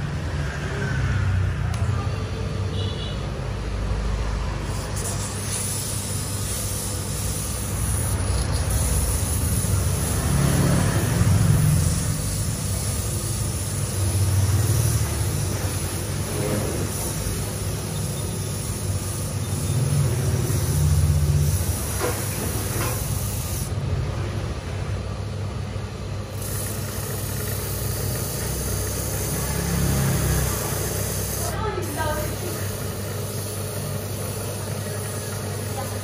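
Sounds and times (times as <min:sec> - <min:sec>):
lathe motor humming: 0:26.1 - 0:36.0.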